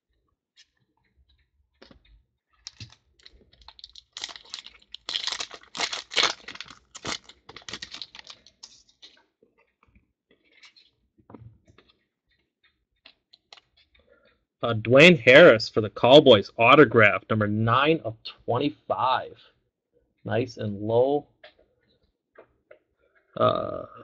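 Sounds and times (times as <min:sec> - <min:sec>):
cards rustling and clicking: 0:01.8 - 0:09.2
foil wrapper tearing and crinkling: 0:02.6 - 0:09.2.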